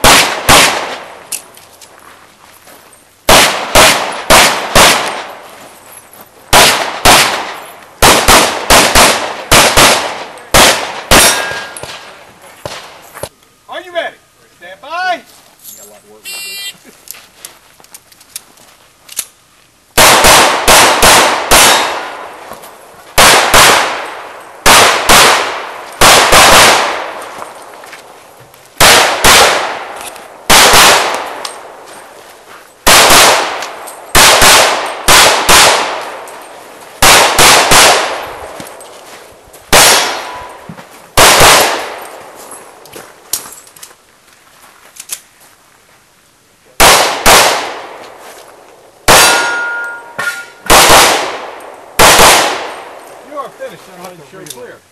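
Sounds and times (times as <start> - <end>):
pistol shots: 0.0 - 1.2, 3.3 - 5.4, 6.5 - 13.0, 20.0 - 22.4, 23.2 - 27.3, 28.8 - 31.8, 32.8 - 36.4, 37.0 - 38.6, 39.7 - 40.6, 41.2 - 42.2, 46.8 - 48.0, 49.1 - 53.2.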